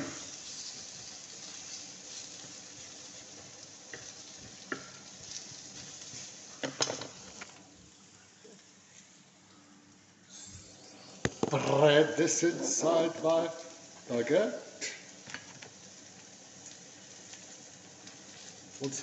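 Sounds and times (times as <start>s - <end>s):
vegetables sizzling on a grill: 0.0s - 19.0s.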